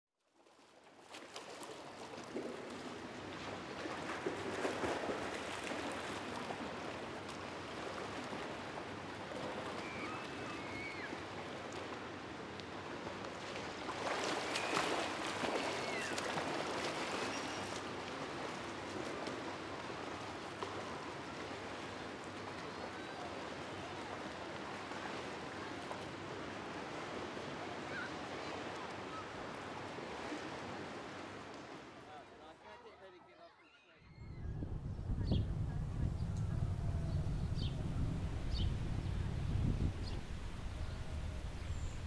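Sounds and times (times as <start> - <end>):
rushing outdoor noise: 34.2 - 42.0.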